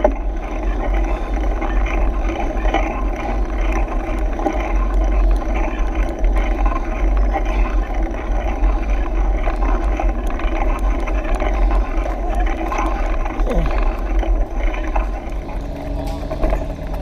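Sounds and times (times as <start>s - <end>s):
bike tyres humming and rattling: 0.0s - 17.0s.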